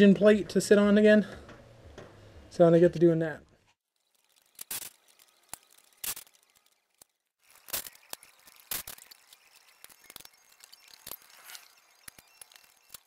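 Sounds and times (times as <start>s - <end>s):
hand tools clicking and clinking: 4.2s - 13.0s.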